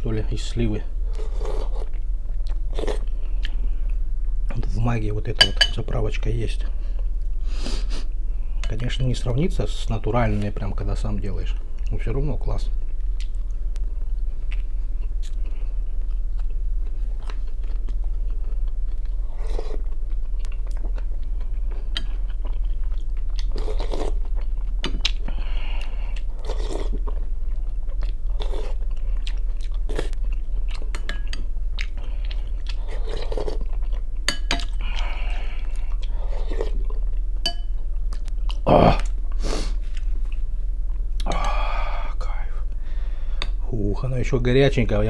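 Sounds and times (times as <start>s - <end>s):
steady low hum: 0.0s - 45.0s
man chewing: 1.1s - 4.0s, 12.9s - 42.1s.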